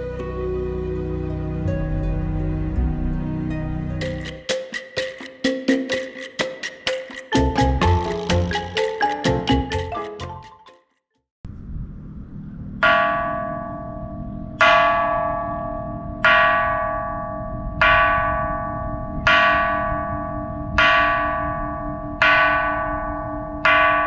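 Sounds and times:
low hum: 0:11.4 - 0:16.2
large bell ringing: 0:12.8 - 0:24.0.

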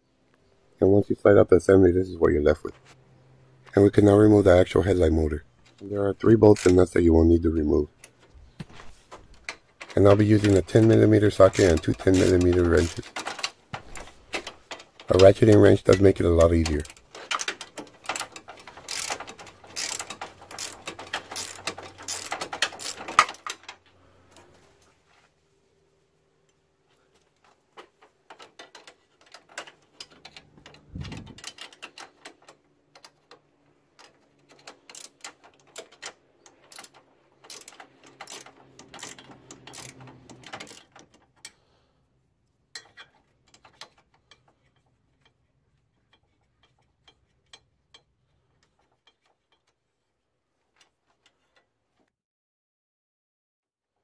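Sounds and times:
ratcheting wrench clicking: 0:05.7 - 0:06.8, 0:09.4 - 0:23.8, 0:28.3 - 0:33.4, 0:34.0 - 0:41.6.

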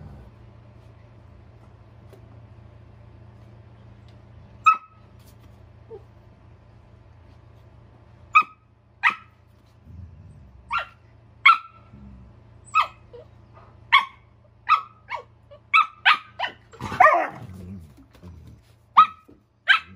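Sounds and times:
dog growling: 0:00.0 - 0:00.5, 0:09.8 - 0:10.8, 0:11.8 - 0:13.2, 0:16.7 - 0:18.8
dog play-barking: 0:04.6 - 0:05.2, 0:08.3 - 0:09.5, 0:10.6 - 0:12.0, 0:12.6 - 0:19.9.

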